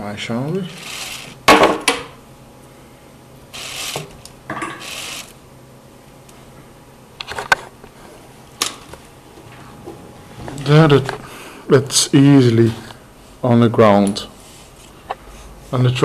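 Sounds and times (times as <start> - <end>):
plastic toy winch clicking: 4.8 - 5.3.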